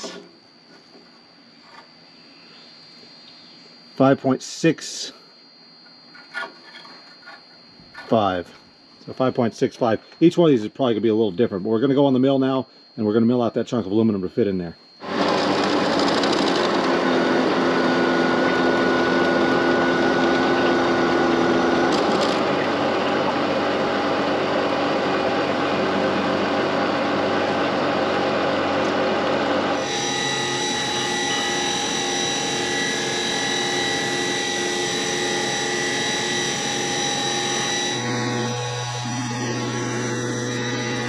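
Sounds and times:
high spindle whine: 0.0s - 41.0s
end mill cutting aluminum: 15.0s - 41.0s.

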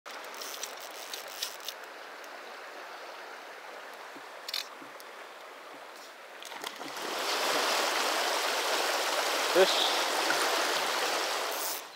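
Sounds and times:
river water rushing: 0.1s - 11.9s
small water splash: 6.0s - 11.9s.

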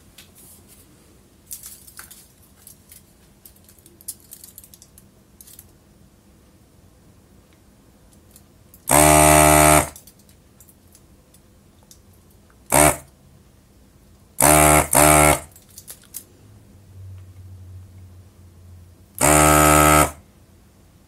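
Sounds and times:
desoldering pump buzzing: 8.9s - 10.0s, 12.7s - 13.1s, 14.4s - 15.5s, 19.2s - 20.2s.

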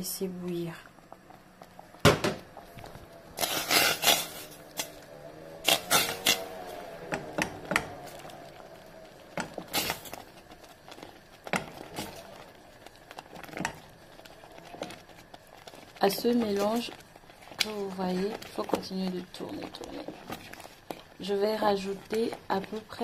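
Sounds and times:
wooden spatula scraping a pot: 3.4s - 5.0s, 5.6s - 8.6s, 9.2s - 23.0s.

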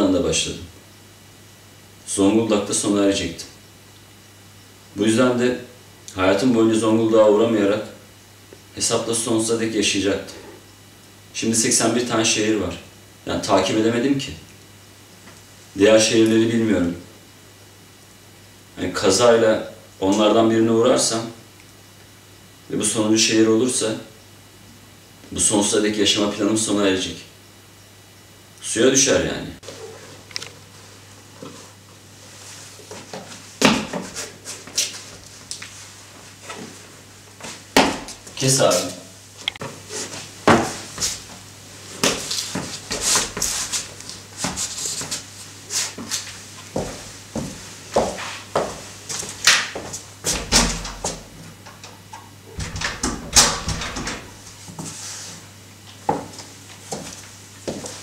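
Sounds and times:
steady low hum: 0.0s - 58.0s
sharp knocks and clatters: 52.6s - 54.3s.

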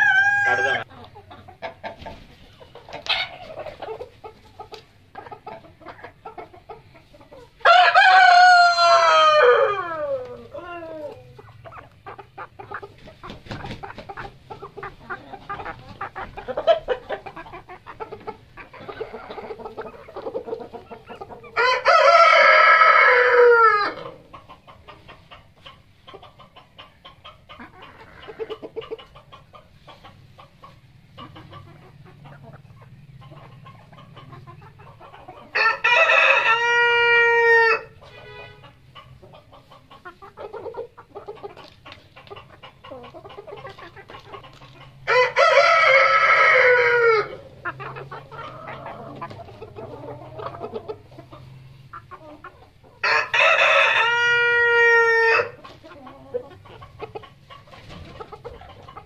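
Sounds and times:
rooster crowing: 0.0s - 0.9s, 7.6s - 10.8s, 21.6s - 24.0s, 35.6s - 38.0s, 45.0s - 47.4s, 53.0s - 55.6s
chickens clucking softly: 0.0s - 59.0s.

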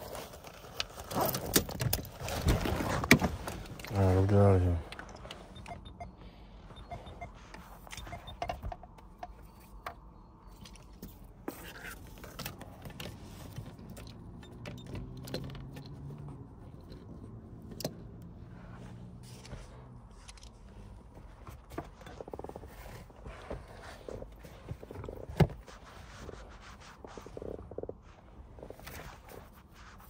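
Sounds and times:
handling clicks taps and rustles: 0.2s - 6.1s, 6.7s - 18.3s.

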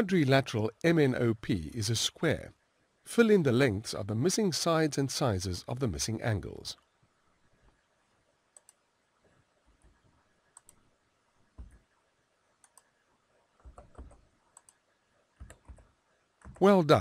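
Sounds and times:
keyboard and mouse clicks: 8.5s - 8.8s, 9.8s - 10.8s, 12.6s - 12.9s, 13.6s - 14.8s, 15.4s - 16.7s.

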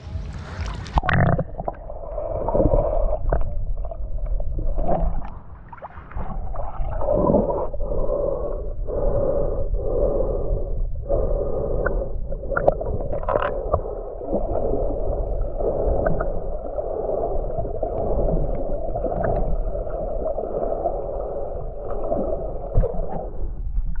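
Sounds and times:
water bubbling against camera housing: 0.7s - 5.4s, 11.8s - 16.7s, 17.5s - 21.0s, 21.6s - 24.0s.

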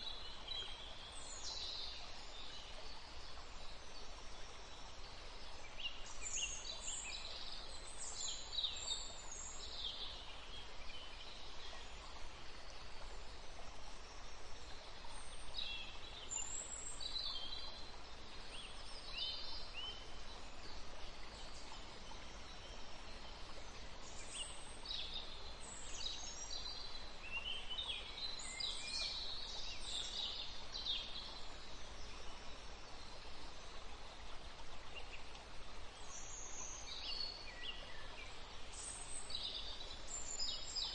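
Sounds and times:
steady faint hiss: 0.0s - 40.9s.

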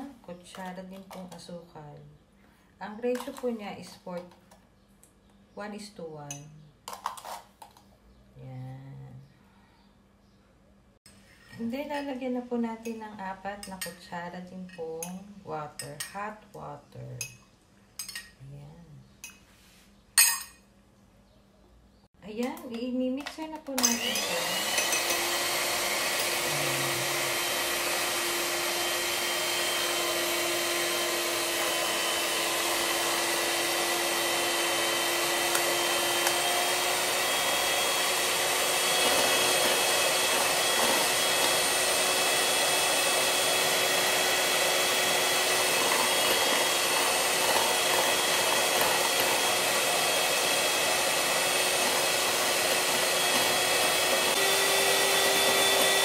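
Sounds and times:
electric whisk motor humming: 23.8s - 56.0s.

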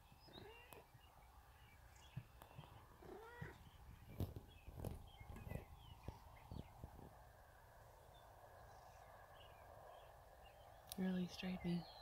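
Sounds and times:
cat meowing: 3.0s - 3.6s.

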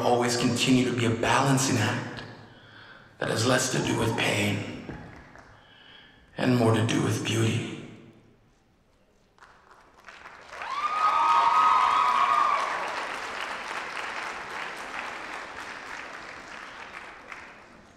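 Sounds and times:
audience applauding and cheering: 4.9s - 5.6s, 9.3s - 17.9s
long high sustained cheer: 10.4s - 13.6s.

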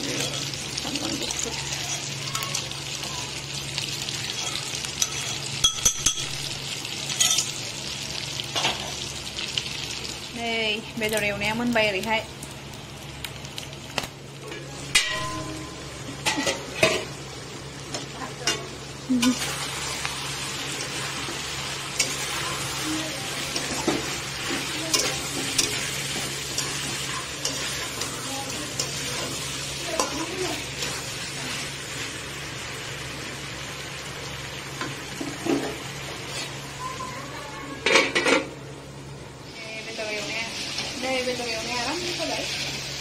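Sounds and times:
meat sizzling in a pan: 0.0s - 38.2s, 38.8s - 43.0s
metal clanks on pan: 4.4s - 6.4s, 7.1s - 7.5s, 14.5s - 17.1s, 17.9s - 18.7s.

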